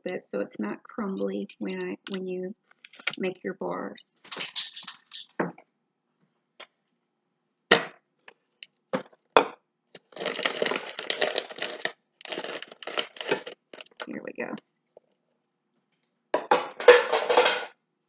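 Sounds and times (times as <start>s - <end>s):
packaging crackling rustle: 10.0s - 14.2s.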